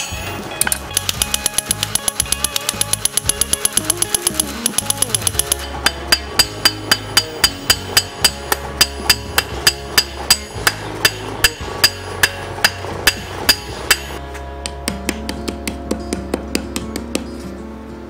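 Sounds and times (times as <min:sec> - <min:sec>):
background music: 0:00.0 - 0:18.0
hammer ringing on anvil: 0:05.3 - 0:14.2.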